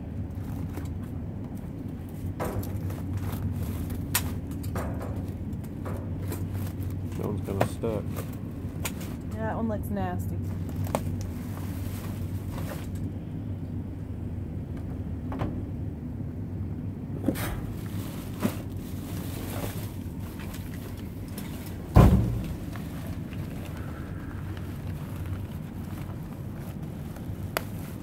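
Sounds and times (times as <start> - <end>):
low hum: 0.0 - 28.0
plastic bags rustling: 0.3 - 9.5, 10.4 - 13.0, 17.6 - 28.0
loud thump: 22.0 - 22.5.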